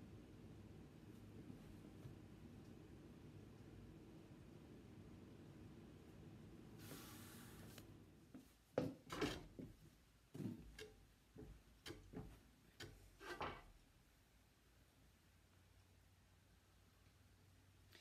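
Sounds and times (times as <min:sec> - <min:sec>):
soft hiss: 0:00.0 - 0:08.8.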